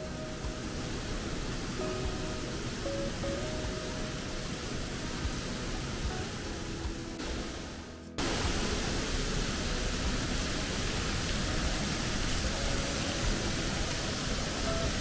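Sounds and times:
mountain river rushing: 0.0s - 15.0s.

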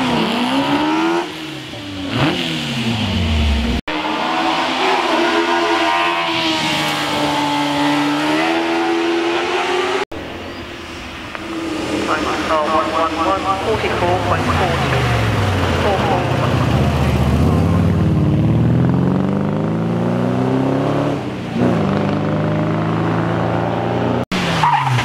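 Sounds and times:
race car engine revving: 0.0s - 25.0s.

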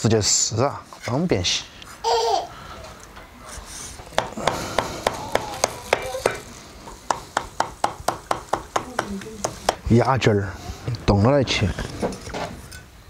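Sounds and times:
cleaver chopping on wooden block: 7.1s - 9.8s.

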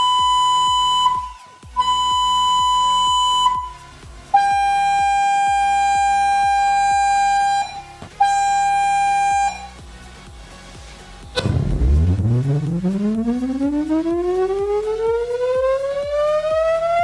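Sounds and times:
electronic test tone: 0.0s - 3.8s, 4.4s - 9.8s
lower buzzy tone: 10.8s - 17.0s.

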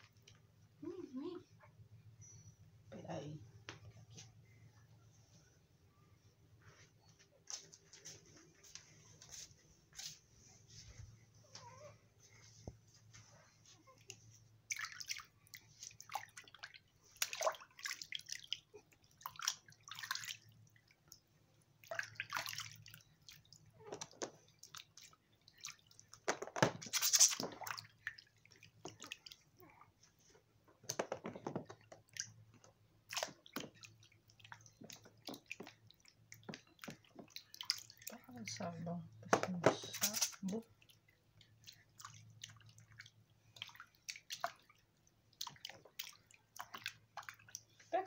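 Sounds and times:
faint low hum: 0.0s - 26.2s
water splashing in baby bathtub: 13.6s - 48.0s.

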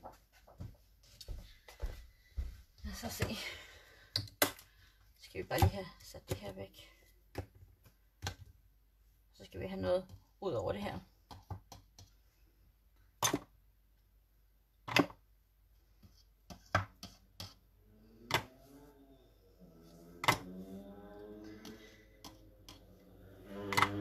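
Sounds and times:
craft supplies knocking and clicking: 13.2s - 13.5s, 14.8s - 15.2s, 18.3s - 18.5s, 20.2s - 20.5s, 23.6s - 24.0s
faint music: 17.9s - 24.0s.

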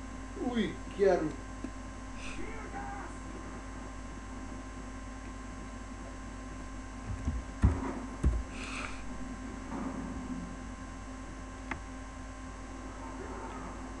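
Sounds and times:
electrical hum: 0.0s - 14.0s
dull knocks on desk: 7.1s - 8.5s.

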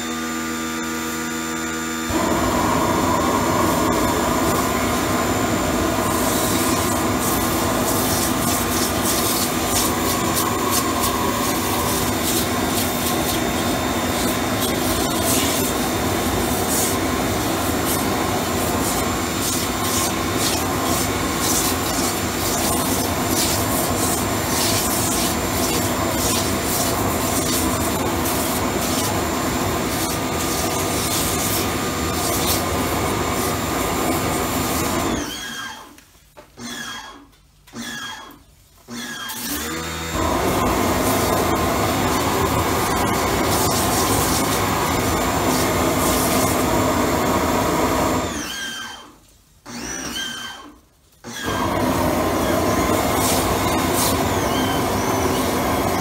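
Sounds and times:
machine running hum: 0.0s - 35.3s
pressure washer water jet spraying: 3.4s - 35.2s, 40.2s - 48.2s, 51.5s - 56.0s
crackling through spray: 6.0s - 35.0s, 40.8s - 46.7s.

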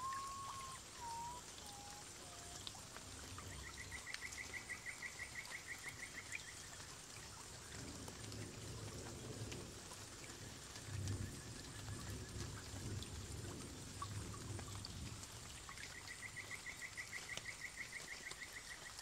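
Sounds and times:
bird trill: 0.0s - 2.6s.

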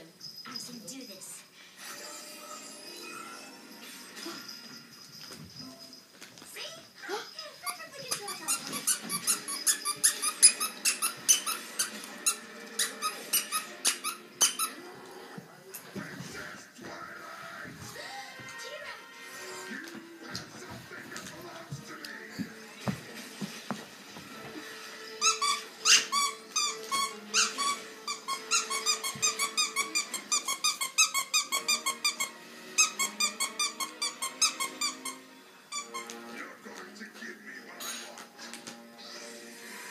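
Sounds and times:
squeaky dog toy squeaking: 7.1s - 14.8s, 25.0s - 36.2s.

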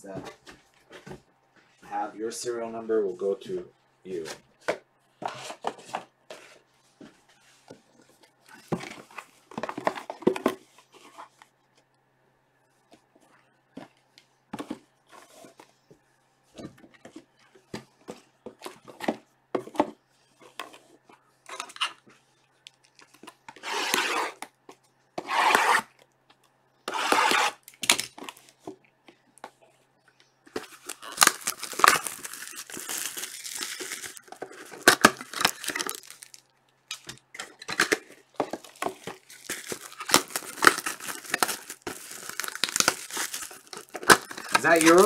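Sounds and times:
boxes tapping and scraping: 4.2s - 11.4s, 30.5s - 36.4s, 37.0s - 45.0s
plastic wrap rustling: 30.5s - 45.0s.

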